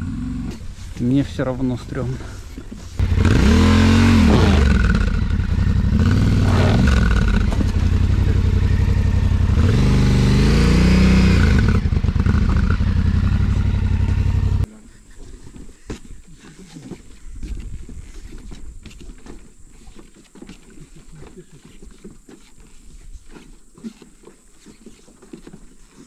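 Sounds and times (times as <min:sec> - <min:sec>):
dirt bike engine revving: 0:03.0 - 0:14.7.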